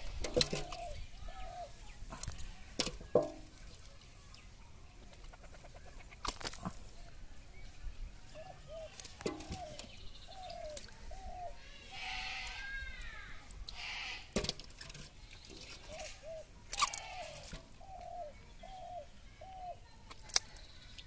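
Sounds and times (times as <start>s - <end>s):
chicken clucking: 5.0s - 6.3s.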